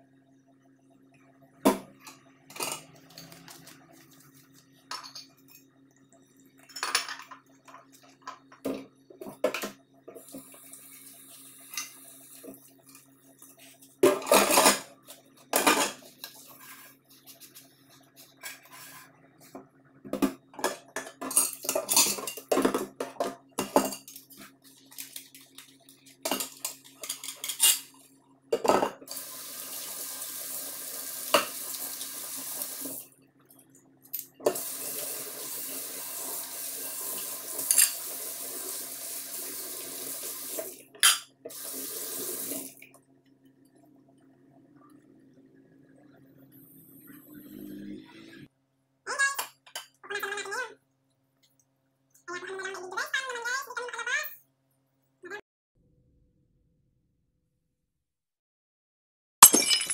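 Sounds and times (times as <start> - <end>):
dishes and cutlery clattering: 14.0 - 16.0, 20.6 - 24.4, 26.2 - 27.9
tap water running onto dishes: 28.6 - 33.7, 34.4 - 45.2.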